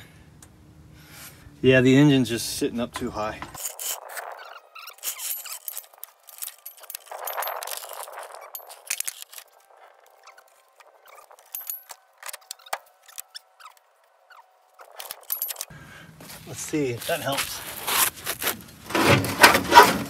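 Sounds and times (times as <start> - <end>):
metal clicks and clanks: 3.0 - 10.1
floor jack scraping on concrete: 18.9 - 20.0.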